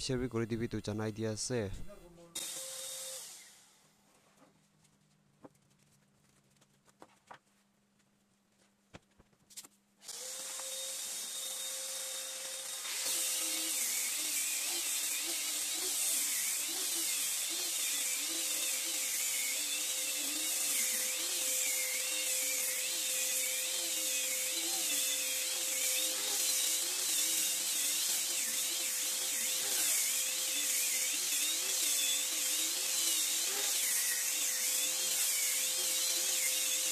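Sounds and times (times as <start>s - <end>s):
electric sanders on wood: 10.0s - 36.9s.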